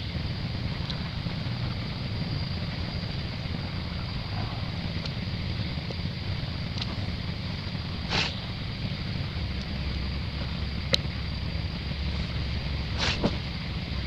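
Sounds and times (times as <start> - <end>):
faint ticks: 6.7 - 7.0.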